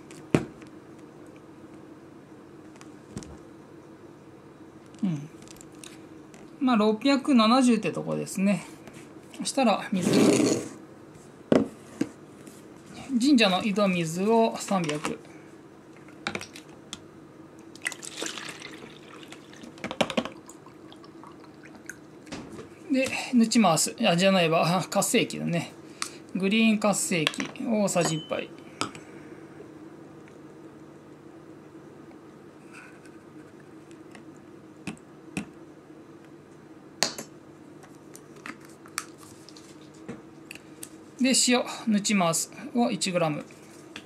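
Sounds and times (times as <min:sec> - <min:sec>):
water pouring and splashing: 0:17.8 - 0:22.0.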